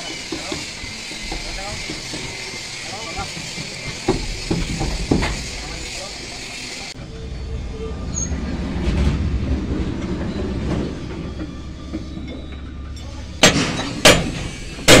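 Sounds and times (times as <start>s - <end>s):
low rumble: 7.0s - 15.0s.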